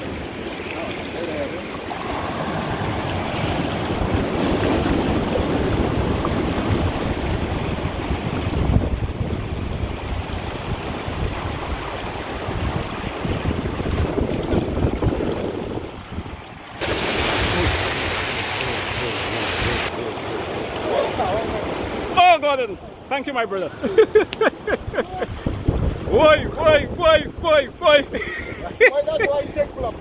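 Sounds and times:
surf breaking over rocks: 0.0s - 22.8s
wind buffeting microphone: 2.2s - 18.3s, 24.8s - 30.0s.

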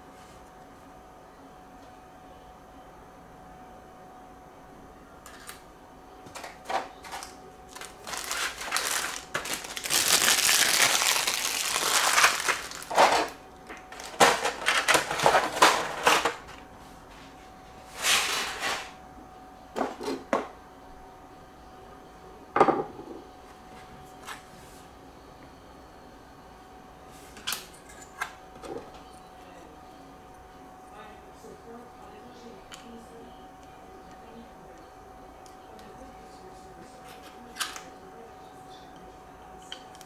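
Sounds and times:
plastic wrapping crinkling: 7.0s - 16.3s.

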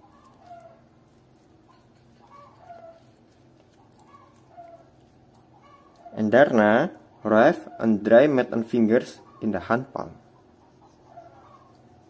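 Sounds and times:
steady low hum: 0.0s - 12.0s
chickens clucking: 2.2s - 3.1s, 9.0s - 12.0s.

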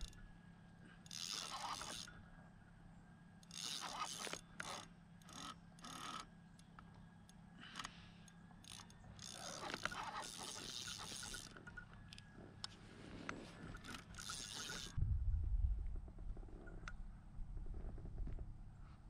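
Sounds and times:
fishing reel gears whirring: 0.0s - 0.3s, 1.0s - 2.4s, 3.4s - 12.0s, 13.6s - 15.0s.

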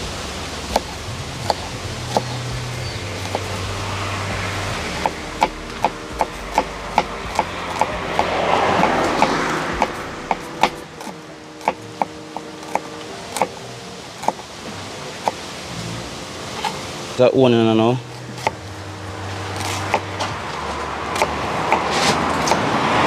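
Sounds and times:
rushing noise: 0.0s - 23.0s
knife chopping on cutting board: 5.0s - 13.5s.

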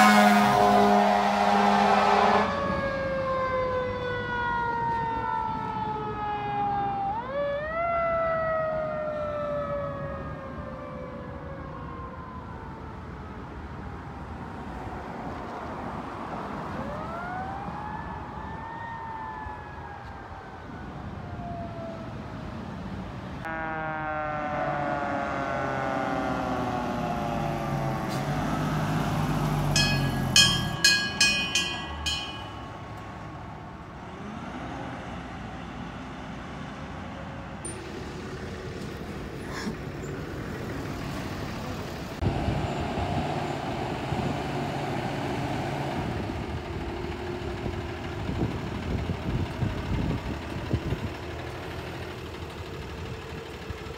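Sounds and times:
short horn blasts: 0.0s - 2.6s, 23.5s - 26.3s
fire engine siren wailing: 0.0s - 53.9s
truck engine running: 24.6s - 33.1s, 37.4s - 53.9s.

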